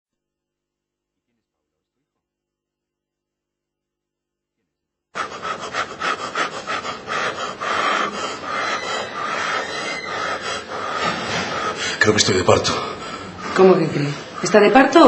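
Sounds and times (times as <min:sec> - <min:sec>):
man panting hard: 0:05.2 - 0:14.6.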